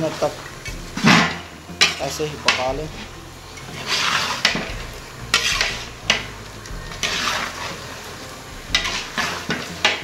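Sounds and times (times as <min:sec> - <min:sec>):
frying sizzle: 0:00.0 - 0:10.0
metal spatula scraping a pot: 0:01.0 - 0:06.3, 0:06.9 - 0:08.0, 0:08.7 - 0:10.0.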